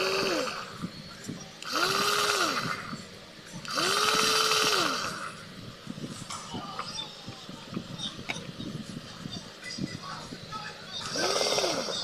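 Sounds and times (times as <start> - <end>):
food processor motor whirring: 0.0 - 1.0, 1.6 - 3.0, 3.6 - 5.4, 11.1 - 12.0.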